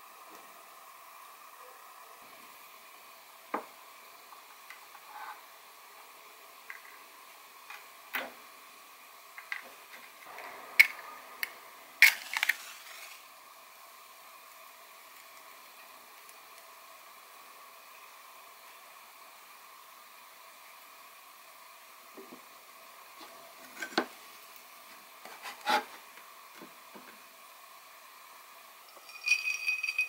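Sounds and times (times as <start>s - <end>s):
faint steady hiss: 0.0s - 30.0s
match struck and flaring: 12.0s - 13.3s.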